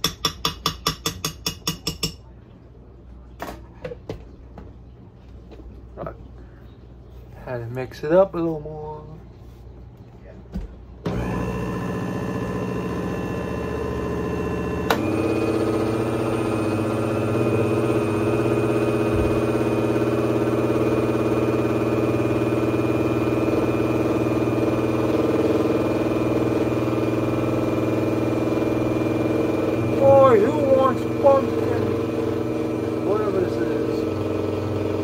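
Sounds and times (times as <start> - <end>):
blender motor running: 11.0 - 35.0.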